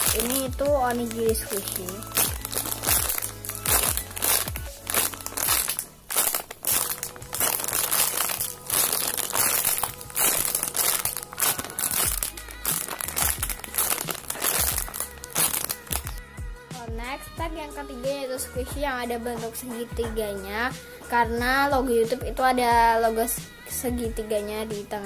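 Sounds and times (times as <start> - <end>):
plastic bag crinkling: 0.0 - 16.2.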